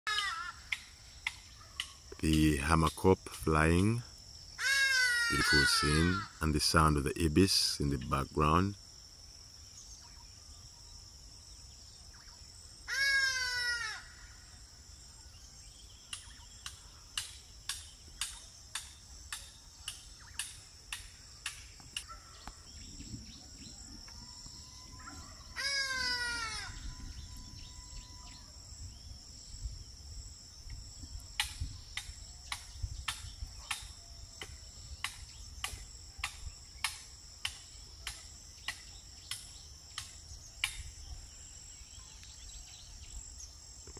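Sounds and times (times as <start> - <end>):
ibis falling cries: 0.1 - 1.0, 4.6 - 8.7, 12.8 - 14.5, 24.0 - 28.4
high insect buzz: 0.1 - 43.9.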